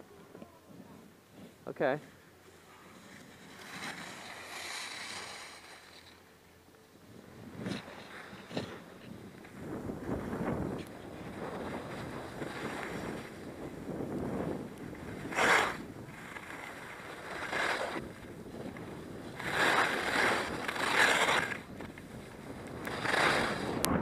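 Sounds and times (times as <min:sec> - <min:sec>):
skis sliding over snow: 0:00.7 - 0:06.4, 0:07.0 - 0:24.0
ski edges scraping: 0:01.0 - 0:06.3, 0:07.4 - 0:23.9
wind noise on microphone: 0:07.2 - 0:24.0.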